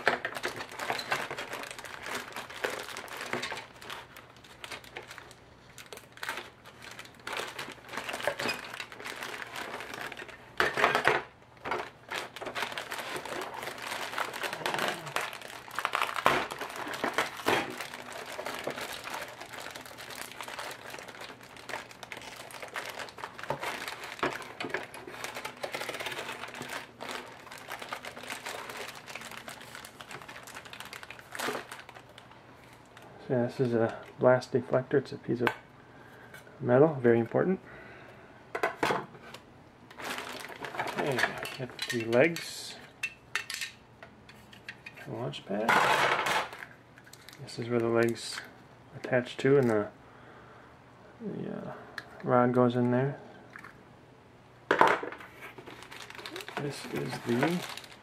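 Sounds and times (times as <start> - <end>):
plastic bags crinkling: 0.0 - 34.2, 39.2 - 43.8, 45.6 - 48.6, 54.8 - 58.0.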